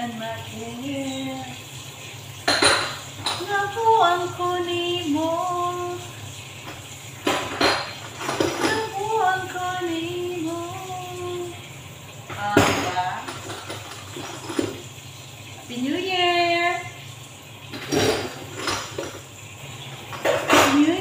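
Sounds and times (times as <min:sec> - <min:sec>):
woman singing: 0:00.0 - 0:01.6, 0:03.3 - 0:06.1, 0:08.6 - 0:11.6, 0:20.6 - 0:21.0
dishes clattering against colander: 0:02.4 - 0:04.3, 0:06.6 - 0:09.6, 0:12.2 - 0:14.9, 0:17.7 - 0:21.0.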